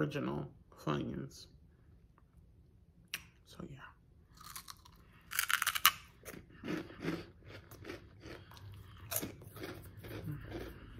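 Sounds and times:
crunching bite into snack: 4.3s - 10.9s
chewing: 4.4s - 10.9s.

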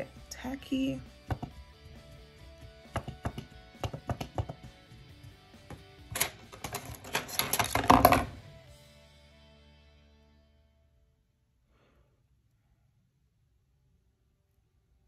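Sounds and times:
faint background music: 0.0s - 11.0s.

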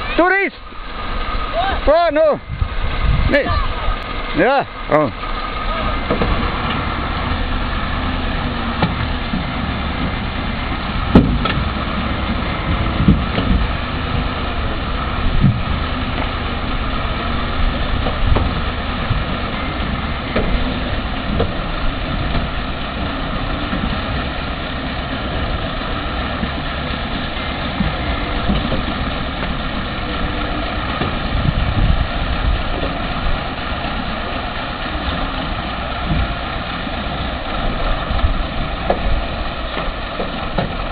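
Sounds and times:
truck engine running: 0.0s - 40.9s
thumps and knocks: 8.7s - 10.3s, 11.0s - 14.4s, 15.3s - 16.4s, 18.0s - 19.4s, 20.3s - 24.3s, 25.1s - 29.9s, 35.1s - 40.9s.

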